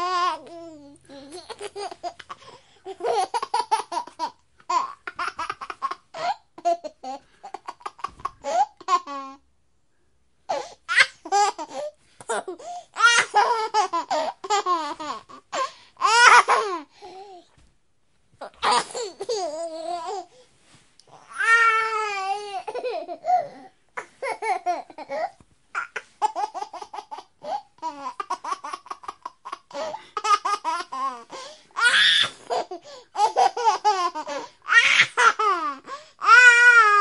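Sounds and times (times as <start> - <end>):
baby laughing and babbling: 0.0 - 9.4, 10.5 - 17.5, 18.4 - 20.4, 21.1 - 37.0.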